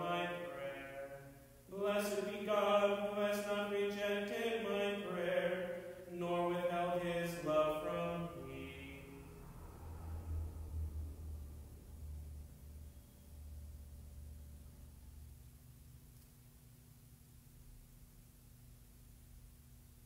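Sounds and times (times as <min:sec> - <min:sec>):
man chanting: 0:00.0 - 0:09.6.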